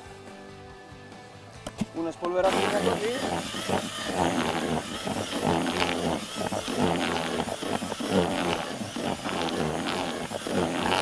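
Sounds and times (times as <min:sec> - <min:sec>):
cordless drill mixing groundbait: 0:02.3 - 0:11.0.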